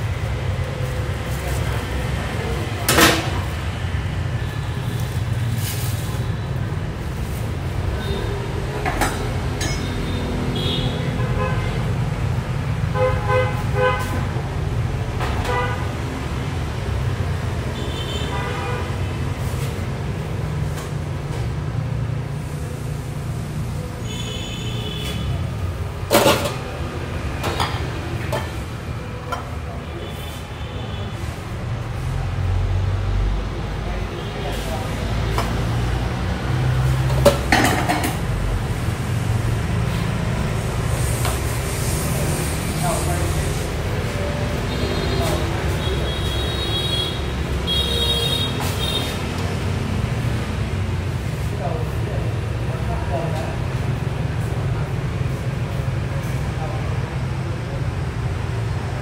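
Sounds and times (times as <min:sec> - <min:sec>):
street traffic rumble: 0:00.0 - 0:59.0
metal ladle and dishes clinking: 0:08.9 - 0:10.0
vehicle horns honking: 0:09.7 - 0:12.0, 0:12.9 - 0:14.3, 0:15.4 - 0:16.0, 0:17.8 - 0:19.2, 0:24.0 - 0:25.5, 0:44.6 - 0:49.2.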